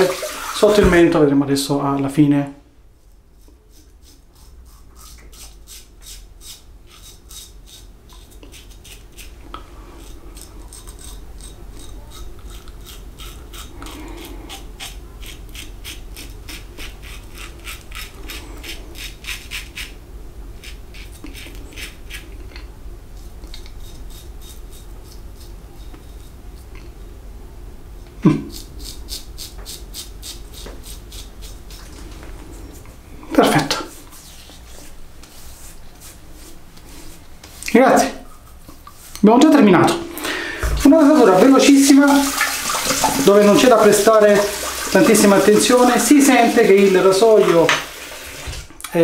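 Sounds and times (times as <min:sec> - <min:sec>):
razor scraping beard stubble: 0:03.0 - 0:20.0, 0:20.6 - 0:26.9, 0:28.4 - 0:32.8, 0:33.9 - 0:37.7.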